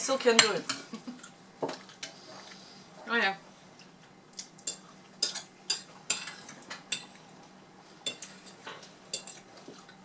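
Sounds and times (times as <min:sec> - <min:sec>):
cutlery clinking on plates: 0:08.1 - 0:09.4.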